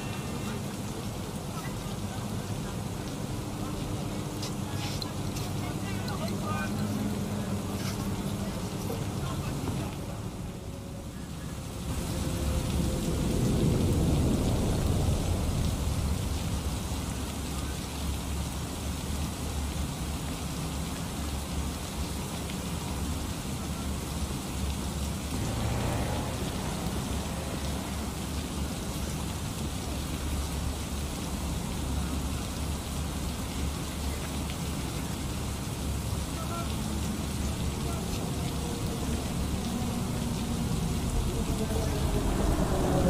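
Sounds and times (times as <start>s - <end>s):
steady rain: 0.0s - 43.0s
low rumble of thunder: 11.8s - 18.4s, 35.9s - 43.0s
low hum: 36.8s - 43.0s.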